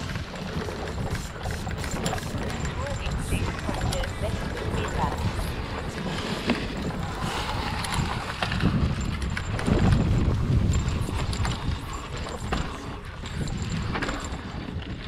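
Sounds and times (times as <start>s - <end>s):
tyres rolling through leaves: 0.0s - 10.7s
bike frame clattering over bumps: 0.0s - 15.0s.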